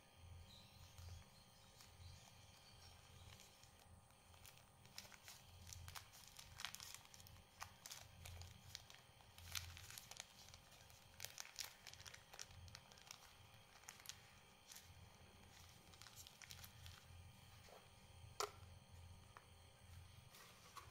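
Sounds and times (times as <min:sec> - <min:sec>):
plastic bag crinkling: 0:00.9 - 0:17.2.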